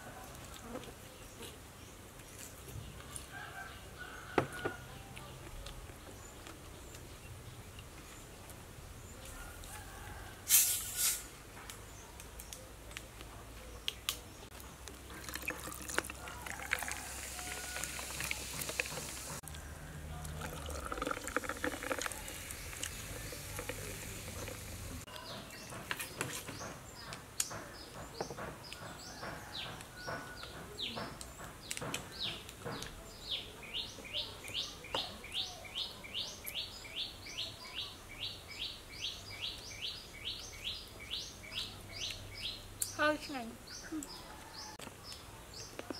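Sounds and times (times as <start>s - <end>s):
soda pouring and fizzing: 15.2s - 19.4s, 20.3s - 25.0s
bird chirping: 21.5s - 45.9s.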